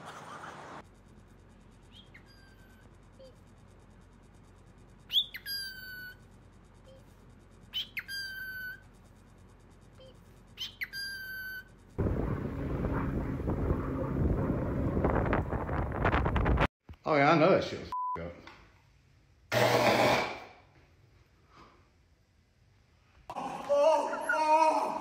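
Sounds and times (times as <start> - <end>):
cockatiel whistled calls: 1.9 - 2.7, 5.1 - 6.2, 7.7 - 8.8, 10.6 - 11.7.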